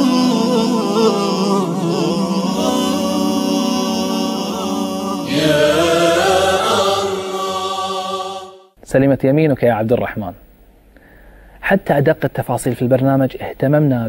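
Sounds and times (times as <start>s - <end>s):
religious chant sung in held notes: 0.0s - 8.8s.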